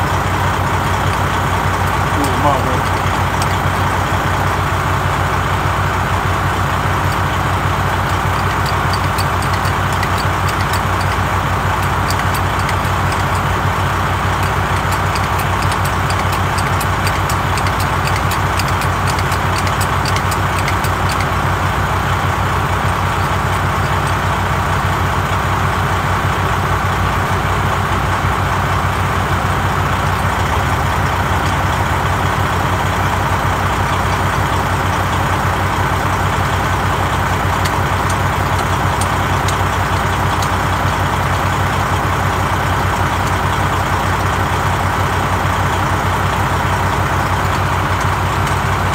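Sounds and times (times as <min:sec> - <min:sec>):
faint rapid ticking: 0:00.0 - 0:24.7, 0:35.9 - 0:48.9
engine idling: 0:00.0 - 0:48.9.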